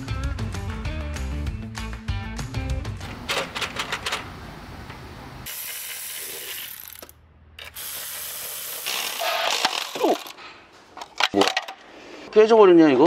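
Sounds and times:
clicks and handling noise: 3.0 - 5.1, 9.0 - 11.9
electric ratchet whirring: 5.4 - 10.4.

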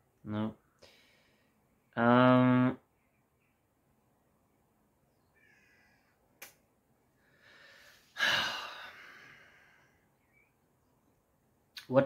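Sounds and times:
man sighing: 8.1 - 9.8.

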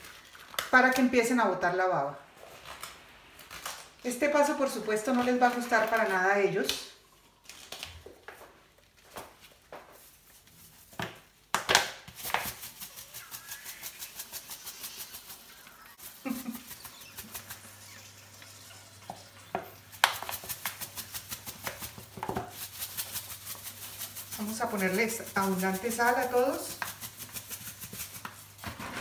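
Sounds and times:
salt grains pattering on steel: 12.1 - 28.5
salt rattling in shaker: 12.1 - 28.9.

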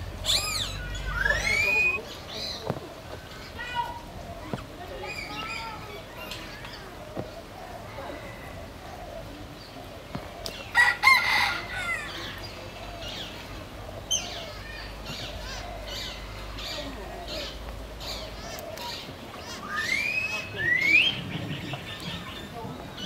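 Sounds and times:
rising bird whistles: 0.2 - 2.0
loud bird call: 0.2 - 2.2
faint bird chirping: 0.2 - 10.8.

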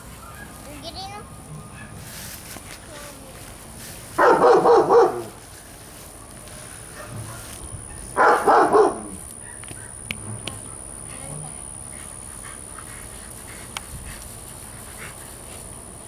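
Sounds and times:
dog barking: 1.8 - 2.0, 4.2 - 5.4, 7.0 - 10.0.

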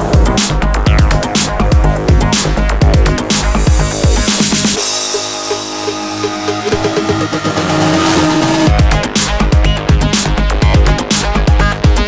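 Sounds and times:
heavy drums and bass: 0.0 - 12.0
held synth tones: 6.3 - 8.9.

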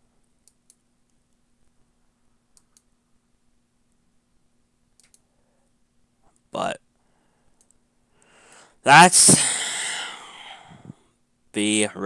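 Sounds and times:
faint steady hum: 0.0 - 12.0
computer mouse clicks: 0.4 - 0.8, 2.5 - 2.9, 5.0 - 5.3.

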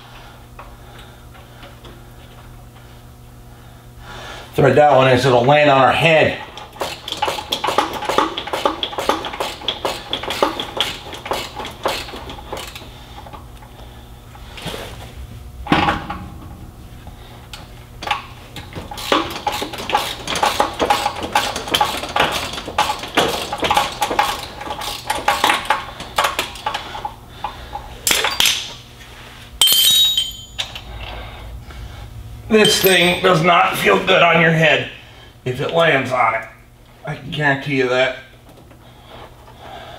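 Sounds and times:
hand ratchet clicking: 6.6 - 12.9, 18.9 - 26.9
metal tools clinking: 29.6 - 31.0, 32.6 - 33.4.

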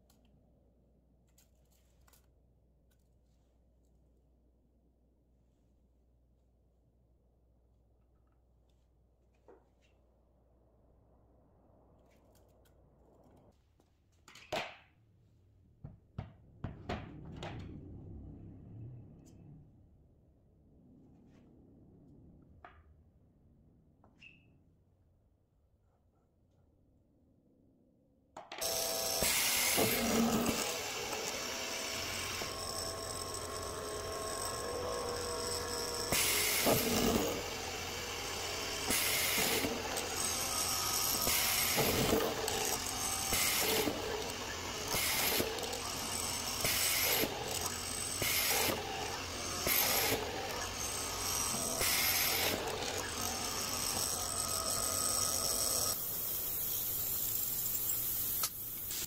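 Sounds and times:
woodworking machine running: 28.6 - 56.4.

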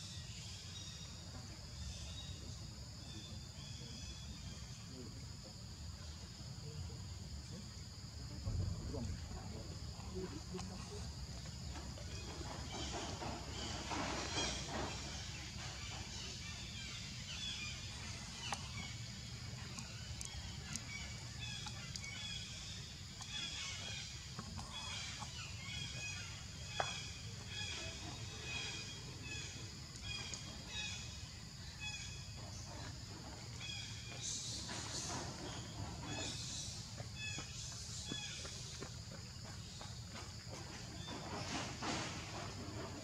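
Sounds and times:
steady low rumble: 7.0 - 12.6.

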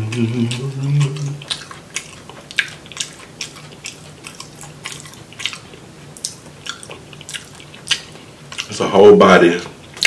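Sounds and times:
wet chewing and smacking: 0.0 - 9.0, 9.6 - 10.0
faint low hum: 0.0 - 10.0.

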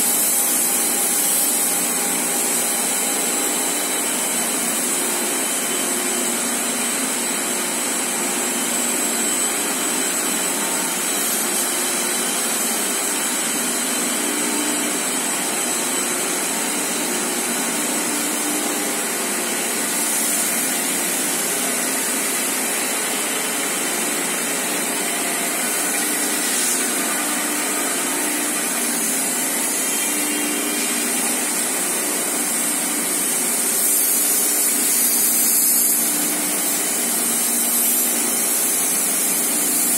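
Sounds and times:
paper slitting machine running: 15.0 - 35.8.

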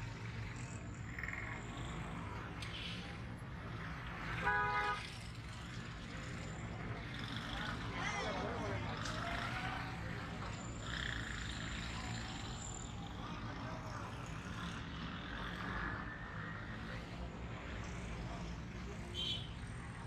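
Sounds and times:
auto-rickshaw engine running: 0.0 - 20.0
motorcycle engines running: 0.0 - 20.0.

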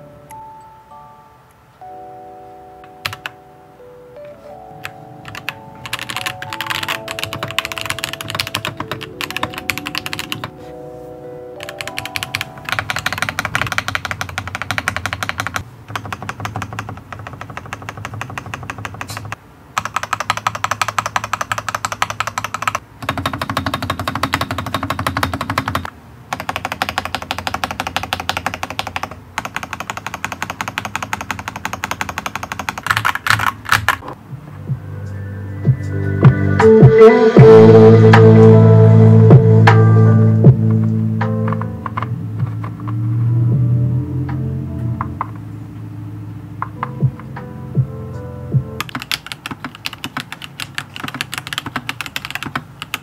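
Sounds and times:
light background music: 0.0 - 15.6, 34.1 - 49.1
mechanical keyboard keys clacking: 2.8 - 3.4, 4.2 - 10.5, 11.6 - 34.1, 41.3 - 43.0, 48.8 - 53.0.

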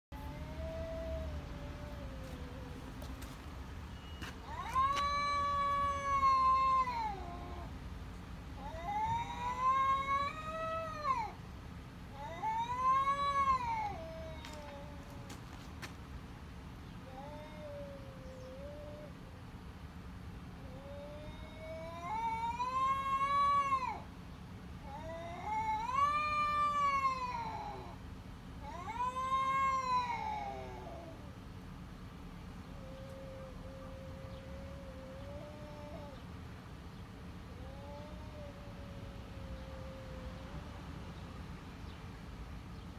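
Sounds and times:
cat yowling: 0.2 - 2.9, 4.4 - 7.8, 8.6 - 11.4, 12.1 - 15.4, 17.0 - 19.2, 20.6 - 24.1, 24.8 - 28.0, 28.6 - 31.4, 32.7 - 36.2, 37.5 - 40.8.

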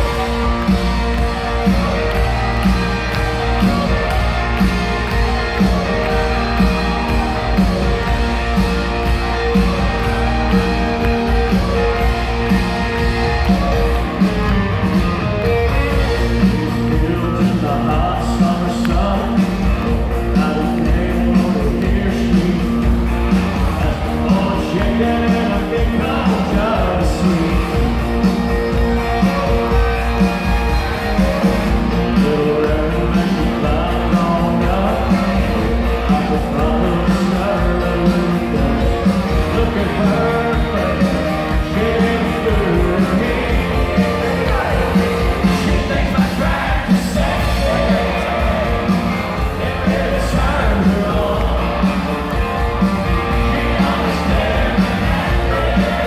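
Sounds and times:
live country band playing: 0.0 - 56.0
man singing: 16.1 - 28.2, 31.2 - 56.0.

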